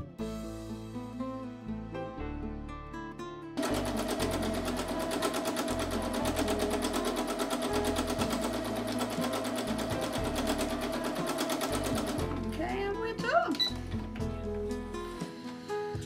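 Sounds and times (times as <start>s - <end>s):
sewing machine running: 3.6s - 12.5s.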